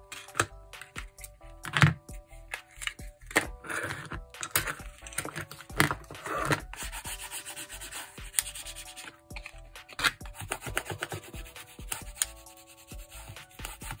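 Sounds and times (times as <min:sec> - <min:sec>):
handling clicks and taps: 0:00.0 - 0:06.8.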